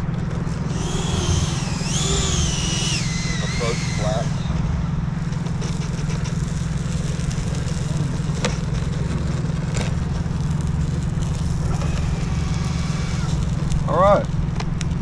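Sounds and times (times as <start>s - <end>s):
drone propellers humming: 0.0s - 15.0s.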